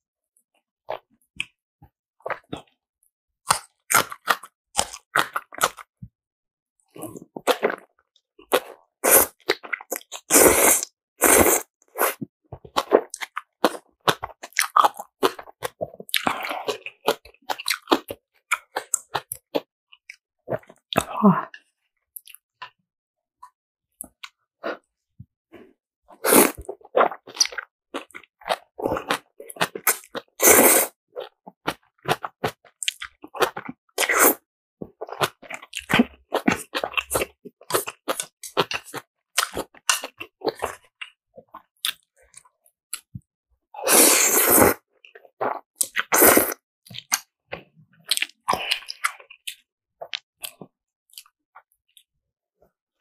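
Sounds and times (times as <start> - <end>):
noodles being slurped and chewed: 6.9 - 21.1, 26.1 - 43.2, 43.8 - 51.3.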